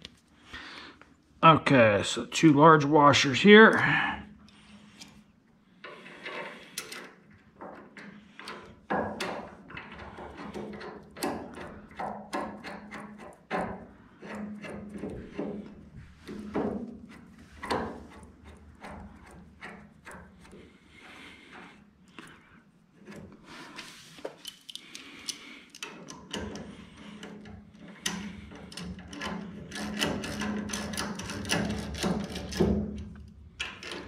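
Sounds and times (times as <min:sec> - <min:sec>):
metal parts clicking and clinking: 0:24.4 - 0:34.0.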